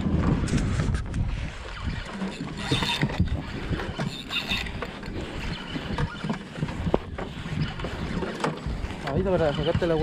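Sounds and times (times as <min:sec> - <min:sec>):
water noise: 0:00.0 - 0:10.0
wind: 0:00.0 - 0:10.0
spinning reel being cranked: 0:01.4 - 0:10.0.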